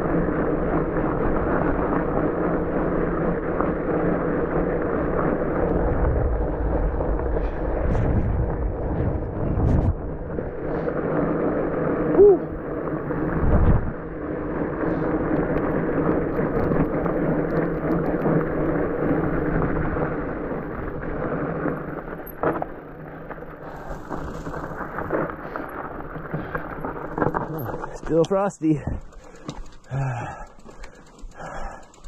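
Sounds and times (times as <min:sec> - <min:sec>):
bike tyre rumble on dirt trail: 0:00.0 - 0:32.0
bike knocking and rattling: 0:00.1 - 0:32.0.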